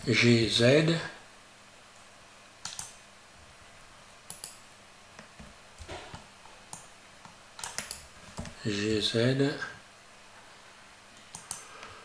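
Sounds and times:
keyboard and mouse clicks: 0:02.6 - 0:03.0, 0:04.3 - 0:04.6, 0:06.1 - 0:08.6, 0:11.2 - 0:11.9.

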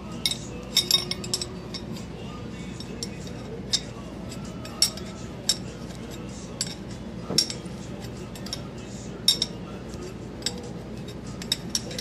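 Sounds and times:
steady low hum: 0:00.0 - 0:12.0
metallic clinks of wrench cranking: 0:00.2 - 0:01.9.

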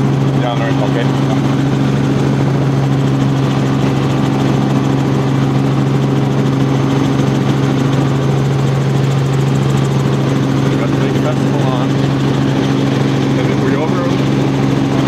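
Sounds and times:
helicopter engine and rotor drone: 0:00.0 - 0:15.0.

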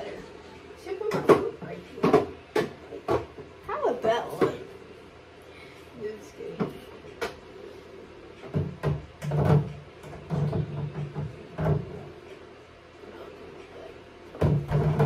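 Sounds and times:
food containers knocking and clattering: 0:01.1 - 0:03.6, 0:08.4 - 0:12.0, 0:14.4 - 0:15.0.

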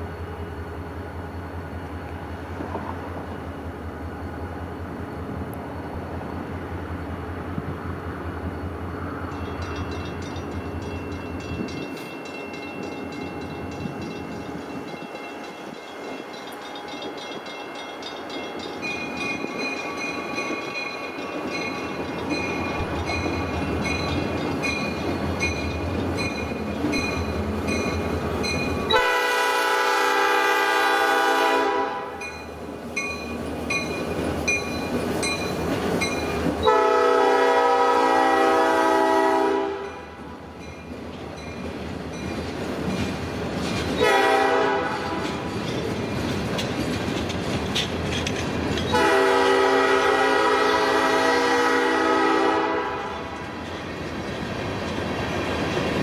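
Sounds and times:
locomotive engine and wheels rumbling: 0:00.0 - 0:56.0
train air horn blasts: 0:28.9 - 0:32.2, 0:36.6 - 0:40.2, 0:44.0 - 0:45.2, 0:48.9 - 0:53.4.

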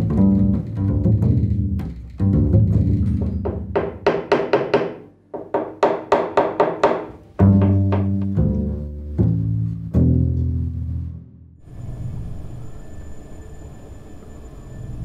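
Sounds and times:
double bass plucked: 0:00.0 - 0:04.2, 0:07.2 - 0:11.4.

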